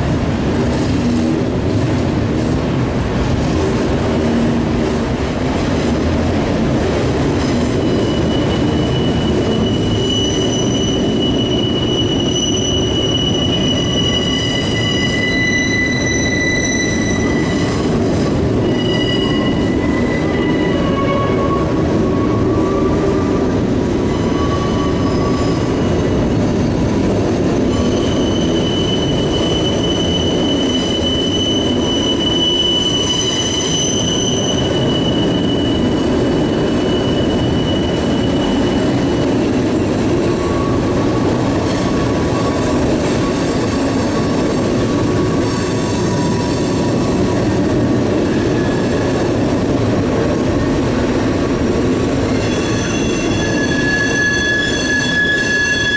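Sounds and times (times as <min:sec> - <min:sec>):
train wheels rumbling on rail: 0:00.0 - 0:55.9
high wheel squeals: 0:07.6 - 0:26.2, 0:27.6 - 0:49.8, 0:52.1 - 0:55.9.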